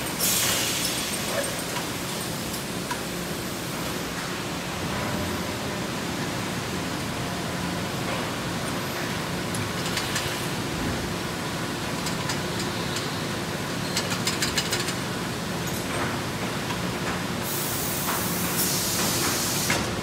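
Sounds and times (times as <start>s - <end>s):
compressed air hissing: 0.0s - 1.3s, 17.4s - 20.0s.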